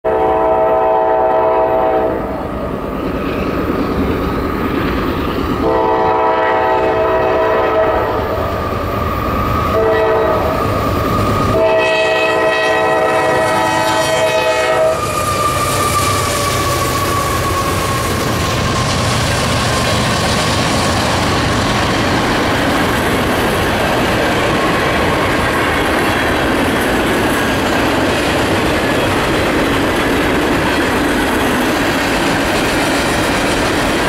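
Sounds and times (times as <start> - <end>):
locomotive air horn blasts: 0.0 - 2.3, 5.6 - 8.3, 9.7 - 10.7, 11.4 - 17.9
diesel locomotives rumbling by: 0.0 - 34.0.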